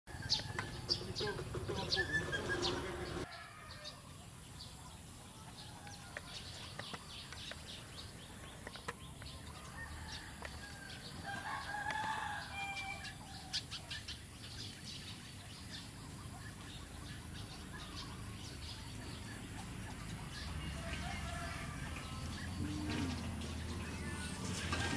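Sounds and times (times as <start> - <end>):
chickens clucking: 0.1 - 10.6, 15.1 - 24.9
rooster crowing: 3.0 - 4.1, 9.6 - 13.6, 20.6 - 22.2.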